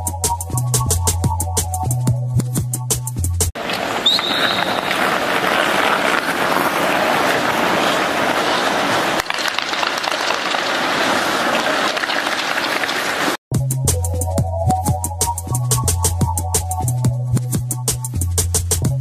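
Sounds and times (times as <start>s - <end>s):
skates scraping on ice: 3.6s - 13.4s
sticks and pucks clattering: 3.6s - 13.4s
high whistle-like tone: 4.0s - 5.0s.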